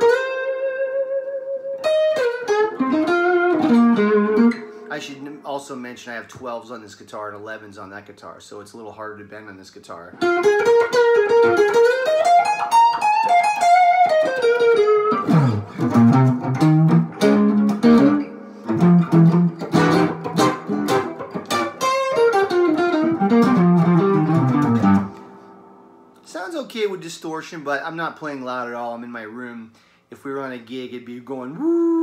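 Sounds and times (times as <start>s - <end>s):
overdriven electric guitar: 0.0s - 4.9s, 10.2s - 25.9s.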